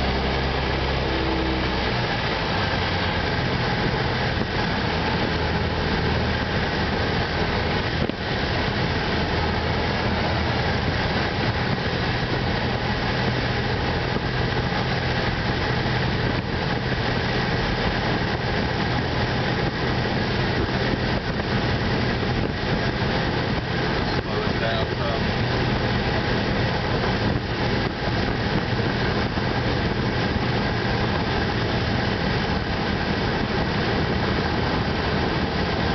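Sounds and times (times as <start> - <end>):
aircraft engine and propeller drone: 0.0 - 35.9
rushing noise: 0.0 - 35.9.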